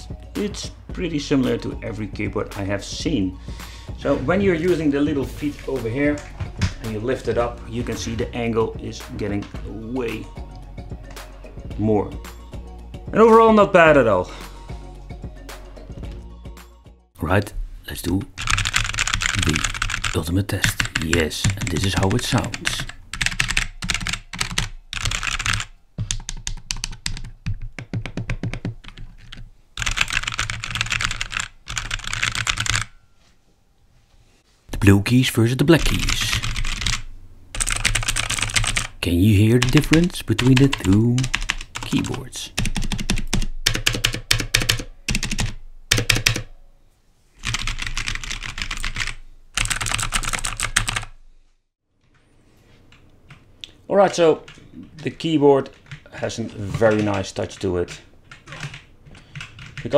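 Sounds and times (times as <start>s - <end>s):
mechanical keyboard typing: 18.4s - 32.9s, 35.8s - 37.0s, 37.6s - 39.0s, 39.6s - 46.5s, 47.4s - 51.1s, 56.7s - 59.9s.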